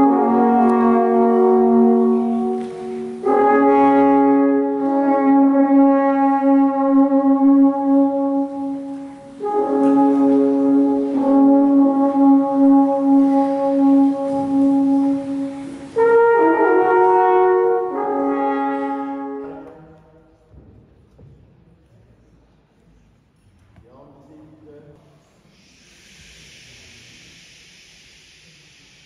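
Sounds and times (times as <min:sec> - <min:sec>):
horns playing long chords: 0:00.0 - 0:19.9.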